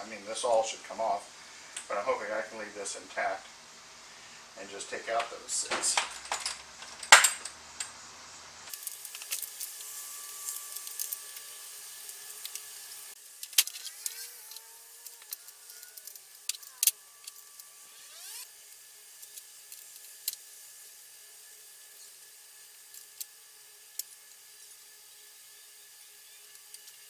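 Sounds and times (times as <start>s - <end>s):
hand tools clicking on metal: 13.4s - 17.7s.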